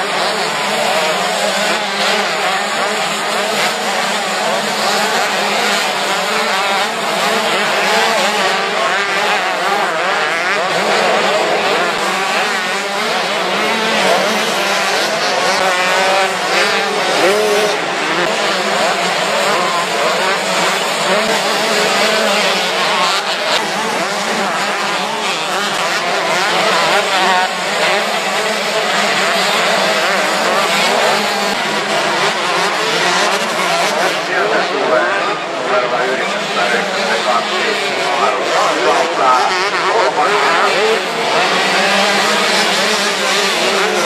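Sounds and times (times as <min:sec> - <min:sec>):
motocross motorcycle engines revving: 0:00.0 - 0:44.0.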